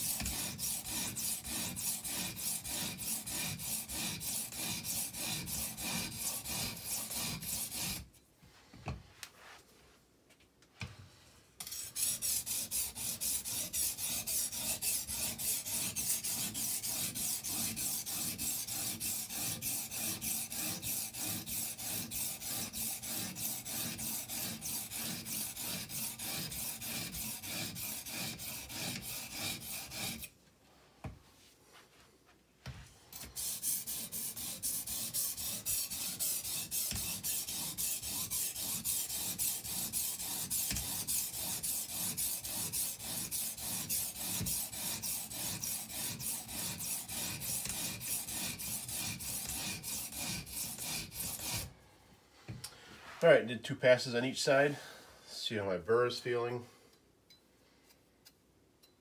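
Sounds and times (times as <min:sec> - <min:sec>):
sharpening stone rasping on knife: 0:00.0 - 0:08.1, 0:11.6 - 0:30.3, 0:33.1 - 0:51.7.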